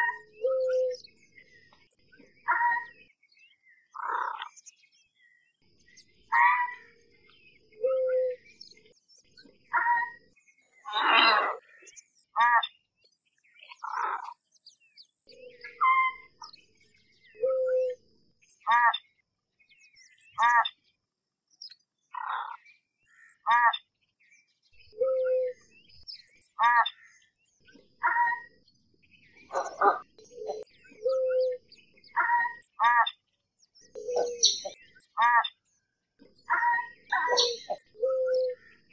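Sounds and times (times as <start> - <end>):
ibises calling: 0.0 - 1.0, 2.4 - 3.0, 3.9 - 4.5, 6.3 - 6.9, 9.7 - 11.8, 12.4 - 12.7, 13.6 - 14.4, 15.3 - 16.5, 18.7 - 19.1, 20.3 - 20.8, 22.1 - 23.9, 26.6 - 27.1, 27.7 - 28.6, 29.4 - 33.2, 33.9 - 35.6, 36.4 - 38.9
faint high chirps: 0.0 - 19.1, 21.5 - 35.6, 36.5 - 38.9
ibis calling: 20.4 - 20.7, 23.2 - 23.8, 29.5 - 33.2, 33.9 - 35.6, 36.5 - 38.6.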